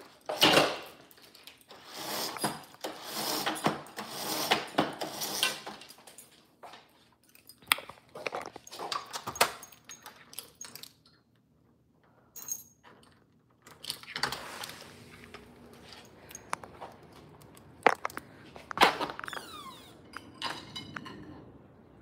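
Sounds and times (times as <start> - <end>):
phone being handled: 16.0 - 19.4.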